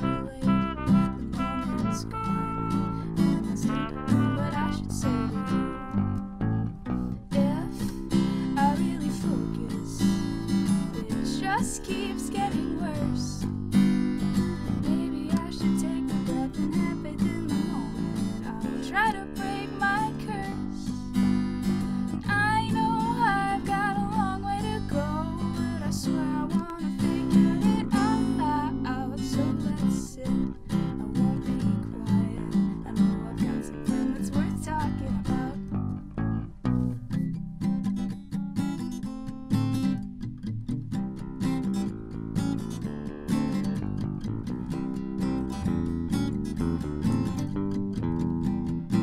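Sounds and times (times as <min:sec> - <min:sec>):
person singing: 0:00.0 - 0:06.0, 0:07.3 - 0:13.5, 0:14.3 - 0:21.2, 0:22.2 - 0:35.8
strummed acoustic guitar: 0:00.0 - 0:49.0
electric bass: 0:01.1 - 0:07.6, 0:35.1 - 0:37.1.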